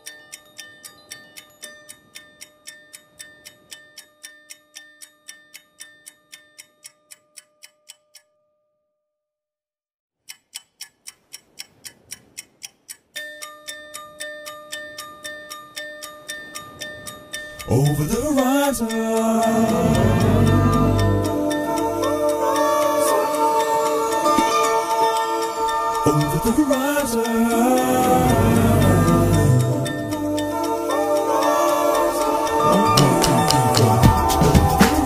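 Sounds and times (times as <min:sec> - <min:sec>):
clock-like ticking beat: 0:00.0 - 0:08.3, 0:10.3 - 0:35.0
held music notes: 0:16.1 - 0:35.0.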